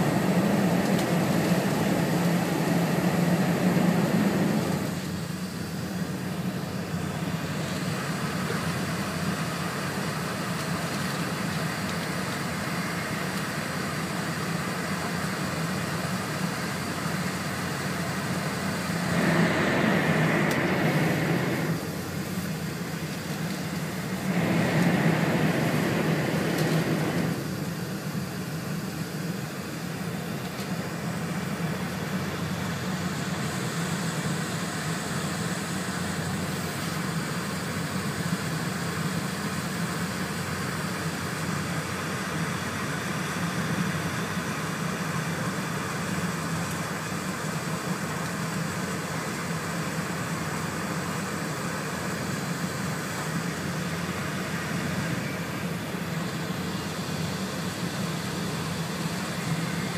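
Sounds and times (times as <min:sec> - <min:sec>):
train cabin rumble and rush: 0:00.0 - 0:42.1.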